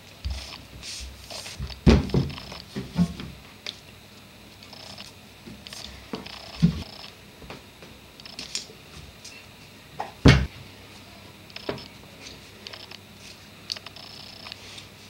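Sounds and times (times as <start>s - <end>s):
heavy thump: 10.3s - 10.5s.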